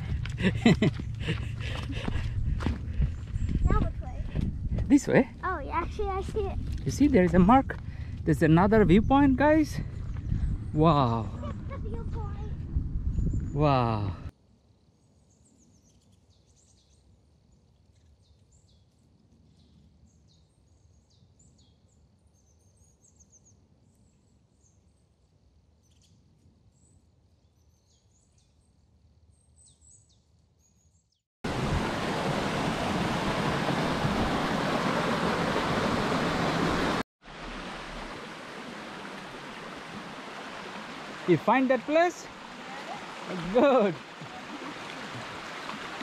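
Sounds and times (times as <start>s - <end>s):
stream rushing: 31.5s - 46.0s.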